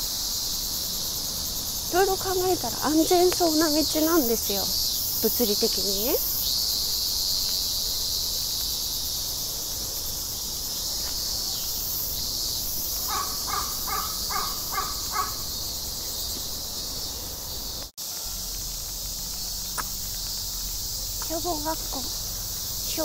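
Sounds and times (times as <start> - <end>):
insects chirring: 0.0 - 23.0
crow cawing: 13.0 - 15.6.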